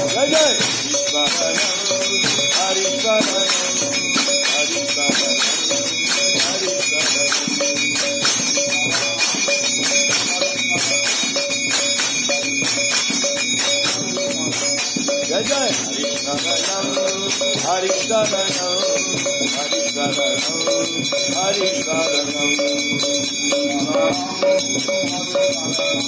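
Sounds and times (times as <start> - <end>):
repeated melodic phrase: 0.0 - 11.3
faint singing voices: 0.0 - 26.0
jingling hand percussion: 0.0 - 26.0.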